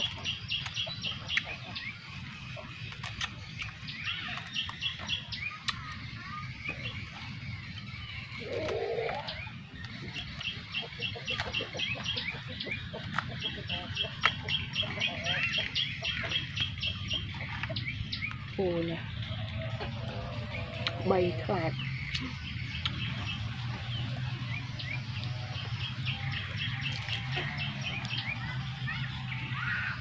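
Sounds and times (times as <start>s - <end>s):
small bird chirping: 0.0s - 30.0s
fruit skin cracking open: 2.9s - 3.8s.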